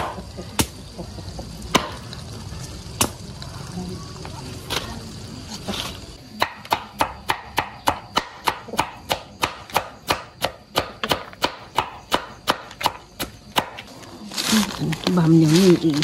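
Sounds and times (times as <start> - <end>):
knife chopping plants: 1.7 - 2.0, 6.3 - 16.0.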